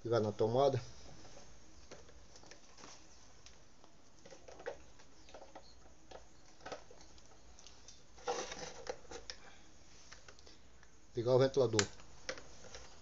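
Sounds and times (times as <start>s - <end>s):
power cord handling clicks: 11.5s - 12.4s.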